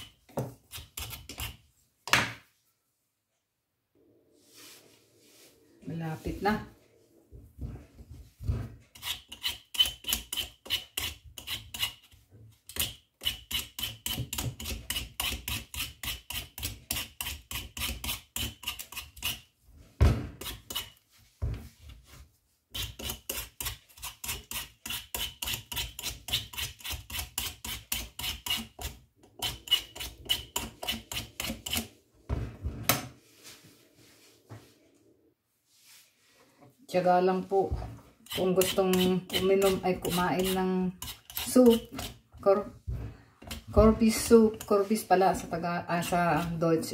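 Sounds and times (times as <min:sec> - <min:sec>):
peeler scraping pumpkin rind: 0:08.9 - 0:19.5, 0:22.7 - 0:31.9, 0:37.7 - 0:42.7, 0:43.4 - 0:46.9.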